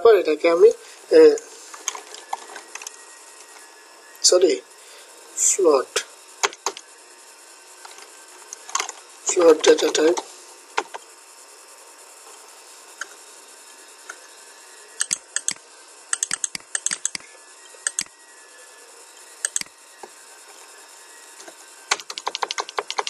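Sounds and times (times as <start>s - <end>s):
keyboard keystrokes: 15.0s - 17.2s, 21.9s - 23.0s
mouse clicks: 15.0s - 18.1s, 19.4s - 19.7s.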